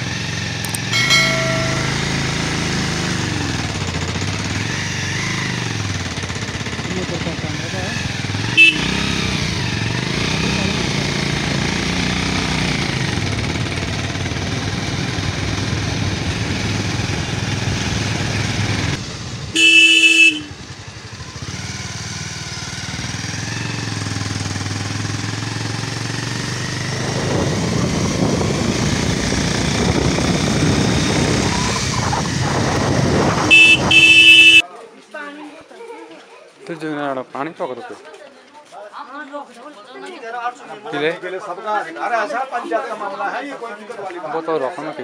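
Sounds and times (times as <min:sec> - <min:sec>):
motorcycle engine running: 0:00.0 - 0:34.6
vehicle horn: 0:00.9 - 0:02.4, 0:08.5 - 0:09.2, 0:19.6 - 0:20.7, 0:33.5 - 0:34.6
wind rush on microphone: 0:26.9 - 0:33.5.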